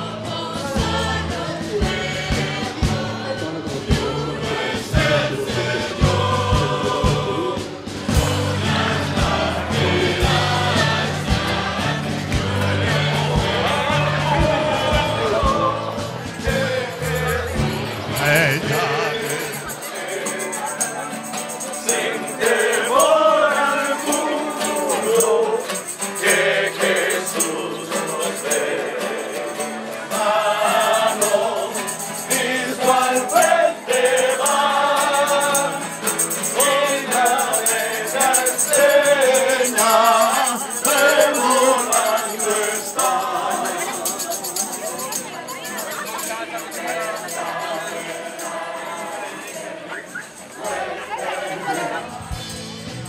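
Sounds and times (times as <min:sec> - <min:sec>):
group singing worship song: 0:00.0 - 0:45.2, 0:45.9 - 0:52.9
jingling tambourine: 0:00.0 - 0:53.0.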